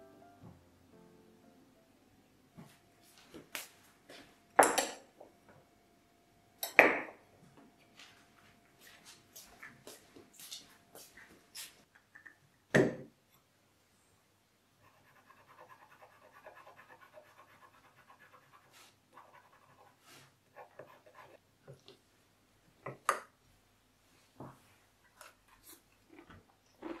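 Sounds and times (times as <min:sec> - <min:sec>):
pencil scribbling on paper: 0:14.8 - 0:21.4.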